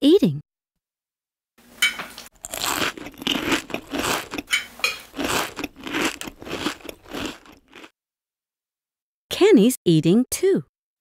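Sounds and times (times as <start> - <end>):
crunchy cereal chewing: 2.4 - 7.9.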